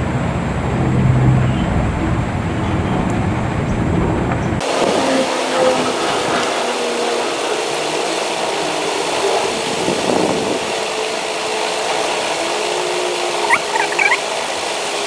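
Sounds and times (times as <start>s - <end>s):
short high squeaks: 13.4s - 14.2s.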